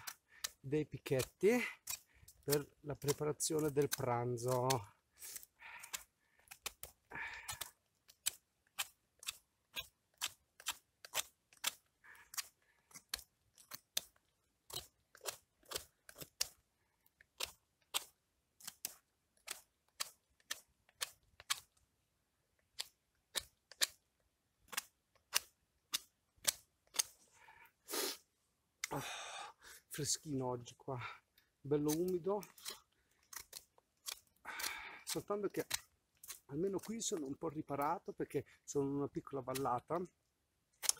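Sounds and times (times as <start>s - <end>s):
knife whittling wood: 0.0s - 16.6s, 31.7s - 37.4s.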